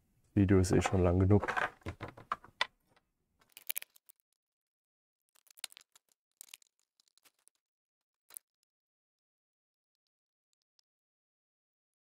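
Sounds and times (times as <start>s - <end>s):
laptop parts clicking and rattling: 1.4s - 4.3s, 5.4s - 7.6s.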